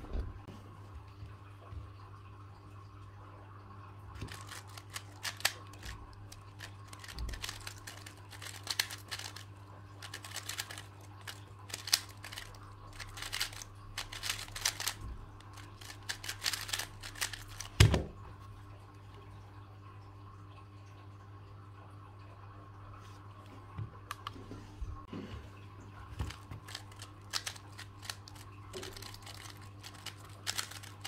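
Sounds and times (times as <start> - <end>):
speed cube clicking turns: 4.2 - 17.8, 26.3 - 31.0.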